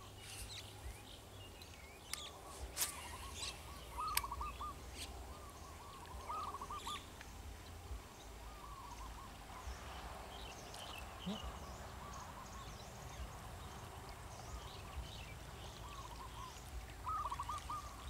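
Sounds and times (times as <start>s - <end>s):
faint outdoor hiss: 0.0s - 18.0s
bird curling call: 2.8s - 7.1s, 15.8s - 18.0s.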